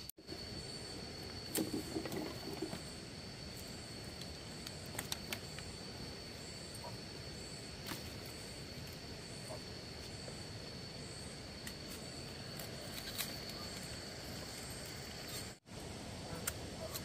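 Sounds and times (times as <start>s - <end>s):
bamboo clicks and knocks: 4.2s - 5.7s.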